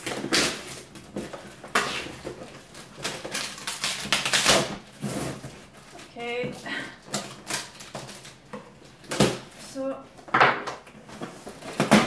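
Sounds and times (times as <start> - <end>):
tape ripping off cardboard box: 0.0 - 5.7, 7.1 - 8.4.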